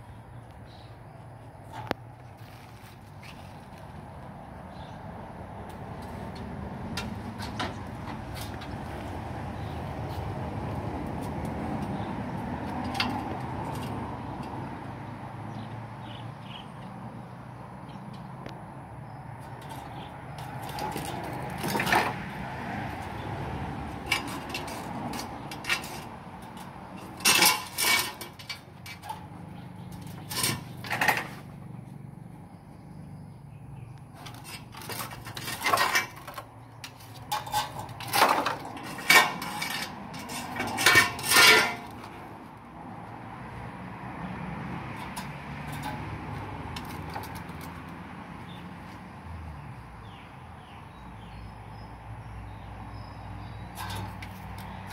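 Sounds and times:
bamboo poles and wood clattering: 0:01.6 - 0:04.4, 0:05.6 - 0:14.7, 0:19.3 - 0:31.7, 0:34.1 - 0:42.6, 0:44.8 - 0:49.1, 0:53.4 - 0:54.9.

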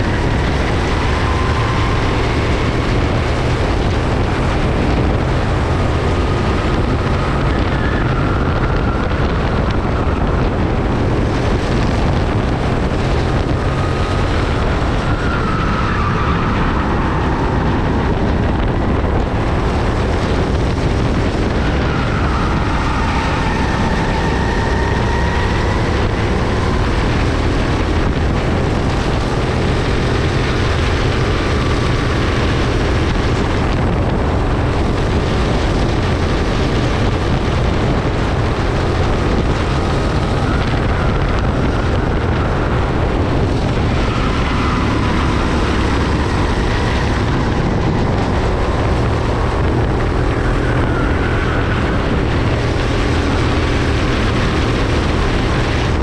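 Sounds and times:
go-kart engine racing: 0:00.0 - 0:56.0.

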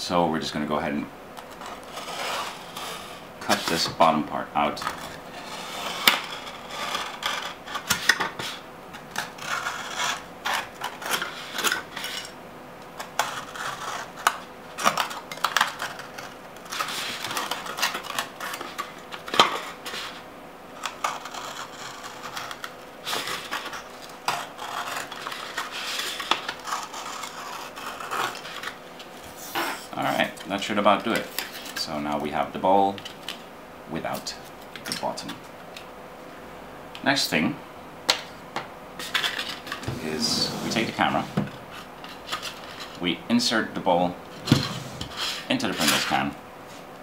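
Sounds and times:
knife scraping plastic bowl: 0:20.8 - 0:28.8, 0:39.2 - 0:43.0.

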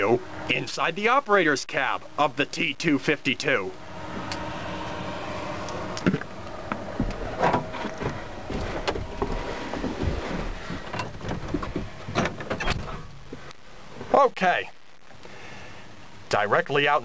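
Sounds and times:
steady background hum: 0:00.0 - 0:17.0
knocks and clicks in truck cab: 0:07.0 - 0:13.4.

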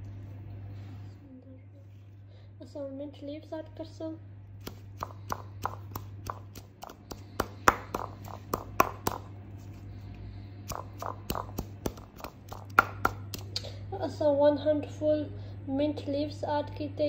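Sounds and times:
pestle pounding in stone mortar: 0:04.6 - 0:09.3, 0:10.7 - 0:13.5.

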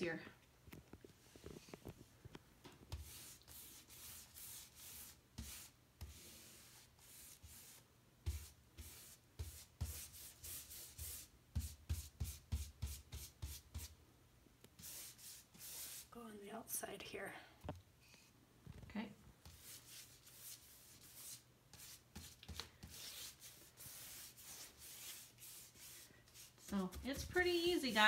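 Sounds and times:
paintbrush strokes: 0:02.9 - 0:14.0, 0:14.8 - 0:16.6, 0:19.4 - 0:28.0.

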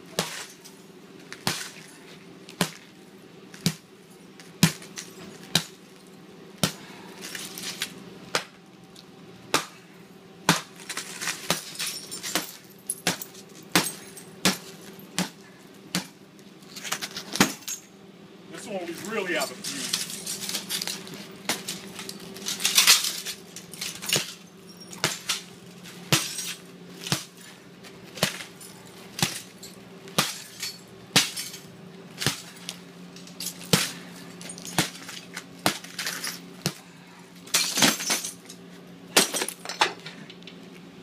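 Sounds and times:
glass crunching: 0:19.6 - 0:25.5, 0:26.1 - 0:27.3, 0:28.2 - 0:32.6.

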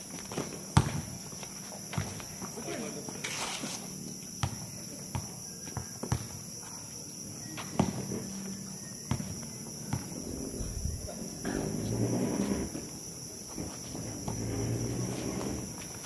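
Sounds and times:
high insect trill: 0:00.0 - 0:16.0
footsteps on hard court: 0:00.1 - 0:06.8, 0:07.6 - 0:08.5, 0:09.1 - 0:16.0
basketball bouncing: 0:00.4 - 0:01.1, 0:07.8 - 0:08.1, 0:09.1 - 0:10.2.

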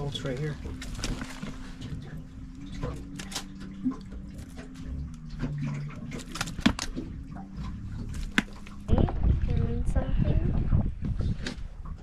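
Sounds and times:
steady low hum: 0:00.0 - 0:12.0
fish flopping in plastic cooler: 0:00.4 - 0:08.9.

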